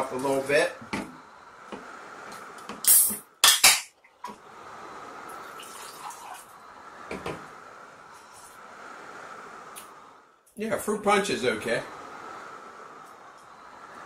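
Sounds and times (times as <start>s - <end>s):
can opening hiss: 2.3s - 3.8s, 9.7s - 9.9s
drink pouring into glass: 5.4s - 6.5s.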